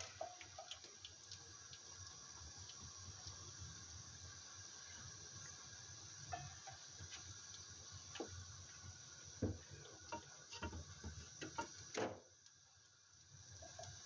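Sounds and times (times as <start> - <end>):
fish frying in hot oil: 0.0 - 14.0.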